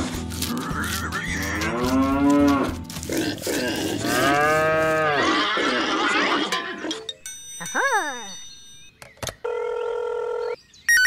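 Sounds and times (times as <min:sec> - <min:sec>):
cattle mooing: 0:00.7 - 0:06.9.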